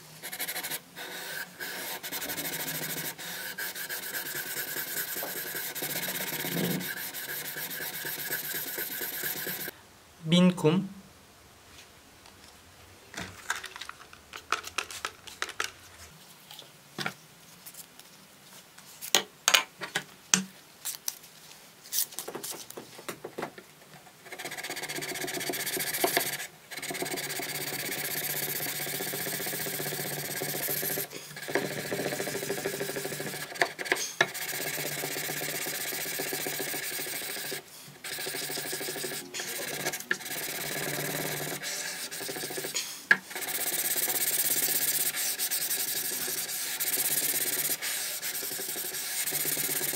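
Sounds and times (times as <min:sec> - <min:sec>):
sandpaper rubbing on steel blade: 0:00.2 - 0:09.7, 0:24.3 - 0:49.9
handling clicks and knocks: 0:13.2 - 0:15.8.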